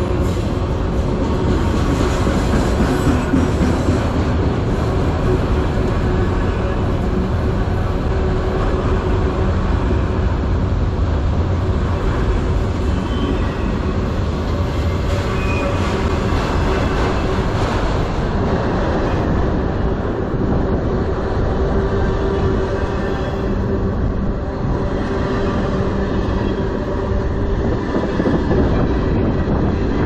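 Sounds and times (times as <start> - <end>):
train wheels rumbling on rails: 0.0 - 30.0
high wheel squeals: 14.8 - 17.3.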